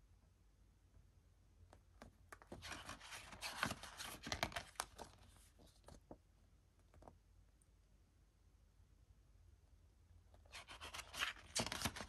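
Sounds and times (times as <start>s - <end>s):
packaging tearing and rustling: 10.6s - 12.0s.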